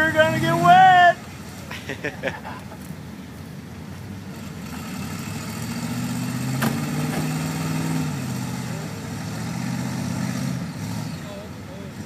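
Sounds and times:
pickup truck engine revving: 4.2s - 12.0s.

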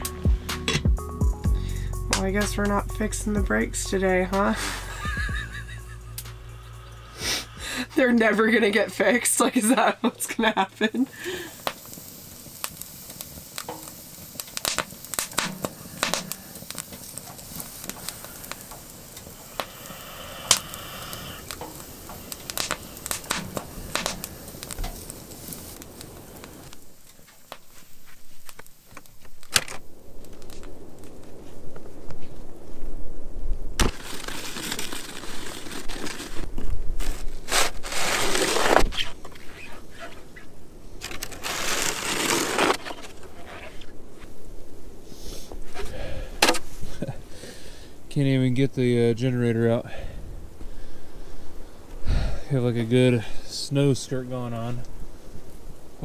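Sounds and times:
crackles and crunches: 3.9s - 47.5s
snow shovel scraping: 4.3s - 6.3s, 7.1s - 8.4s, 33.8s - 43.9s.

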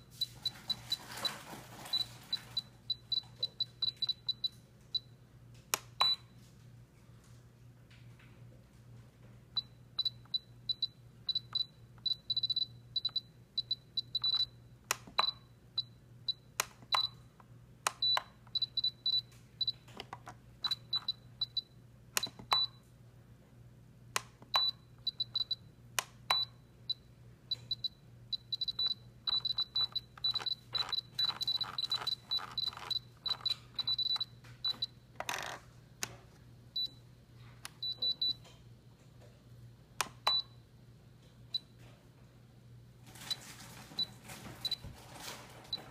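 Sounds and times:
button and dial clicks: 22.2s - 22.7s, 27.5s - 35.3s.

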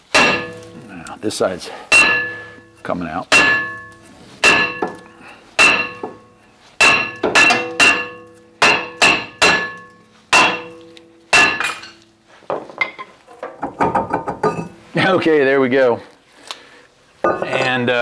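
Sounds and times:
metal knocks and clatter: 0.0s - 1.0s, 1.9s - 14.8s
sledgehammer ringing on iron disc: 0.0s - 1.0s, 1.9s - 12.0s.

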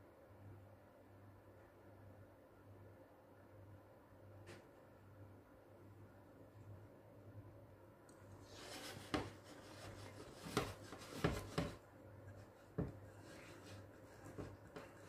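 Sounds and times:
whisk swishing through batter: 8.4s - 15.0s.

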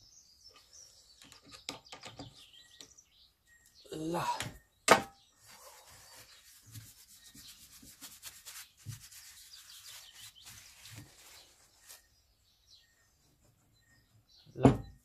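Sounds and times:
gloved hands rubbing and scraping: 5.4s - 12.4s.

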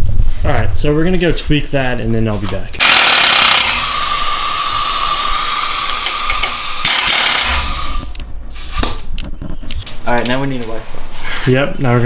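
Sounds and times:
air ratchet hissing and whining: 2.8s - 9.0s.

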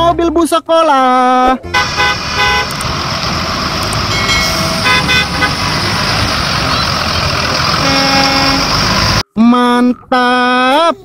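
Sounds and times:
bus engine running: 1.6s - 9.3s
horn toots: 1.7s - 2.8s, 4.2s - 5.9s, 7.8s - 9.0s
road noise on wet road: 1.7s - 9.2s.

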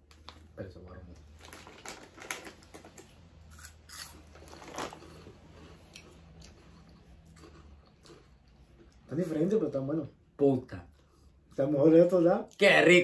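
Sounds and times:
crunchy snack being chewed: 1.4s - 9.1s.

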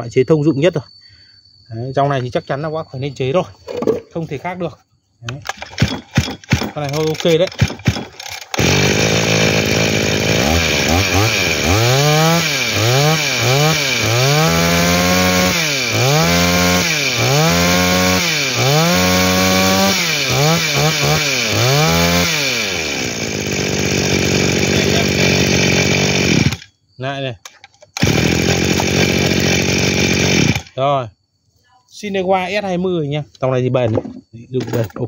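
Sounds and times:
brush cutter engine revving: 5.5s - 26.7s, 27.9s - 30.8s.

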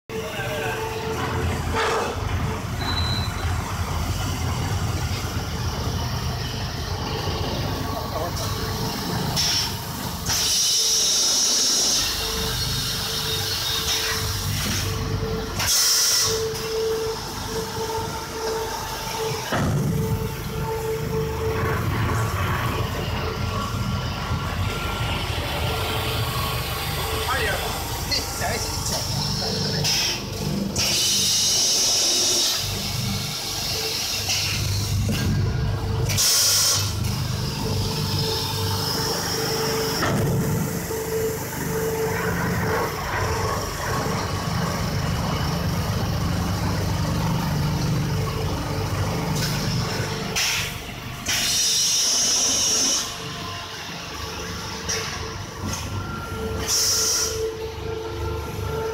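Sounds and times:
machine rumble and hum: 0.1s - 58.9s
loud air hiss: 15.6s - 16.4s, 30.8s - 34.6s, 36.1s - 37.0s, 51.3s - 53.2s, 56.6s - 57.4s
air hissing: 51.3s - 53.1s, 56.6s - 57.4s.

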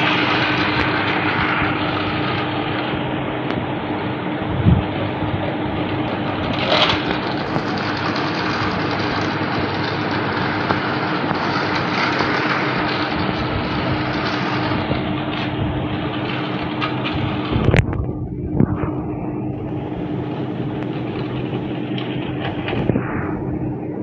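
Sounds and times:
wheels rattling on plastic track: 5.9s - 17.9s, 20.8s - 22.8s.

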